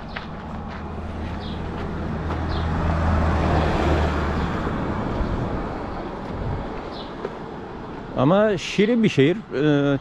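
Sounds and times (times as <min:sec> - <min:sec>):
vehicle driving past: 0:00.4 - 0:06.6.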